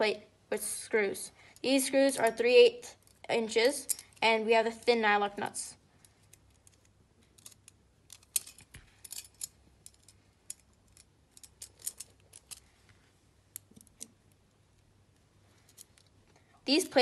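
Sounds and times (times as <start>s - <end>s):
small metal clicks and clinks: 1.6s - 4.2s, 6.0s - 12.7s, 15.6s - 16.2s.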